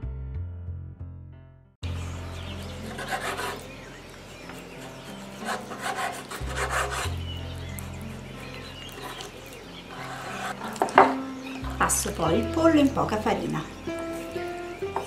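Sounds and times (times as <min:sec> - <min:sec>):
soft background music: 0:01.8 - 0:15.0
knife slicing meat on wooden board: 0:08.2 - 0:11.1.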